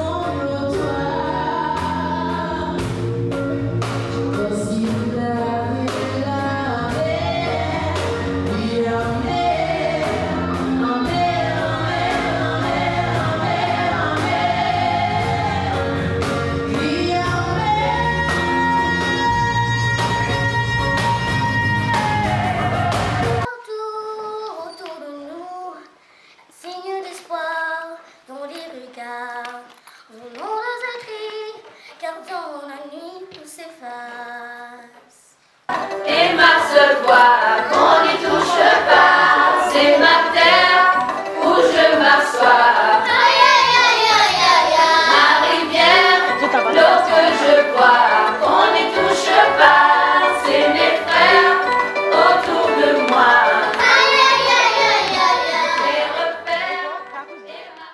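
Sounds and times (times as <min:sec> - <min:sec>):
children singing together: 0:06.8 - 0:19.4, 0:35.8 - 0:57.9.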